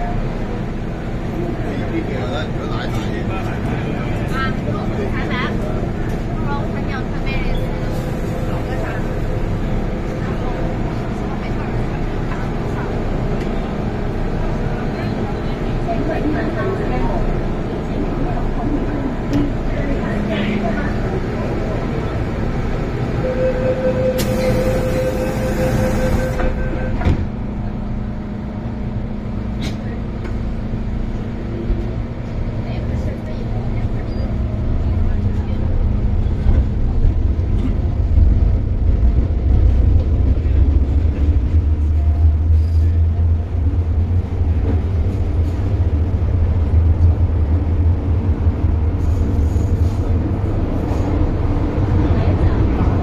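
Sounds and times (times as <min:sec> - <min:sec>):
train electrical hum: 0:00.0 - 0:53.0
high warning tone: 0:23.2 - 0:27.2
train doors thumping shut: 0:24.0 - 0:27.4.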